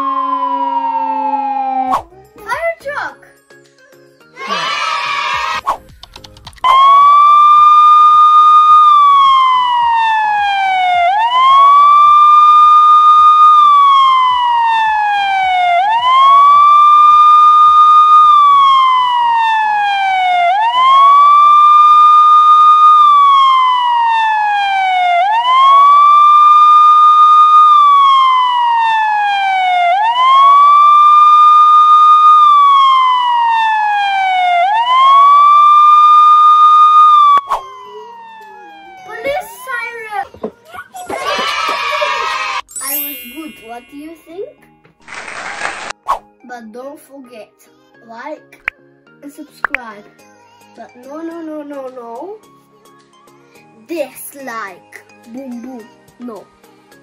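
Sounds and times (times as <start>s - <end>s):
police car siren wailing: 0.0s - 2.0s, 6.7s - 40.2s.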